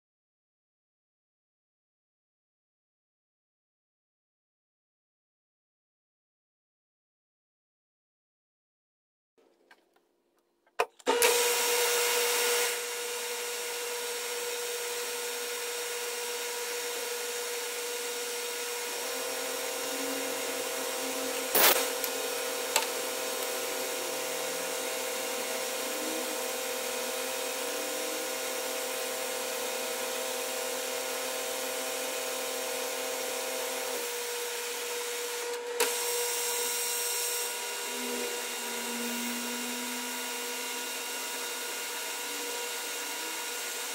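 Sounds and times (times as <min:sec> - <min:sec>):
metal lathe humming: 0:12.4 - 0:43.9
loud hiss: 0:19.5 - 0:22.8.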